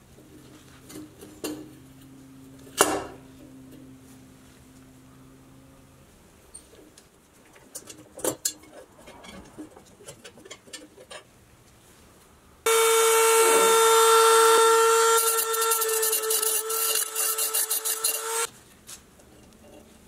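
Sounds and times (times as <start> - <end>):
rotary tool whine: 12.7 - 18.5
rotary bit rasping on steel: 14.4 - 18.5.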